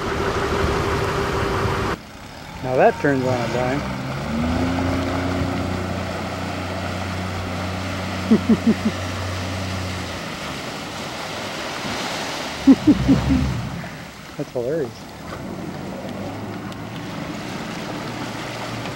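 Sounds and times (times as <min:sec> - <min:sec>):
outboard motor droning: 0:00.0 - 0:18.9
water wash: 0:00.0 - 0:18.9
wind: 0:00.0 - 0:18.9
people laughing: 0:08.2 - 0:09.1, 0:12.6 - 0:13.6.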